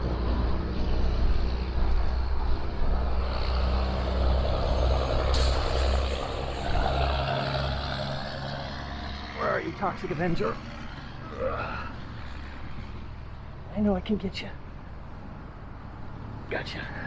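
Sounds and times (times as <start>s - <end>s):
truck engine droning: 0.0s - 13.6s
heavy road traffic: 0.0s - 17.0s.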